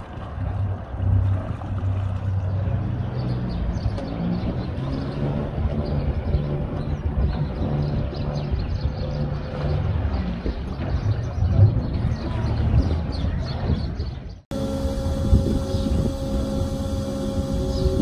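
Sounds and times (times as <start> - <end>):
boat engine humming: 0.0 - 13.2, 14.5 - 18.0.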